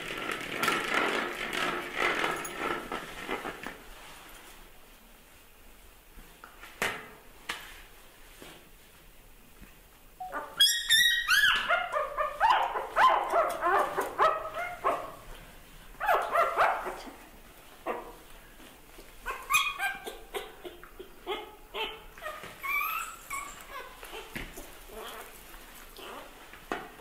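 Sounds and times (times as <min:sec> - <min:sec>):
puppy whimpering and yelping: 0:10.2 - 0:15.1, 0:19.2 - 0:24.3.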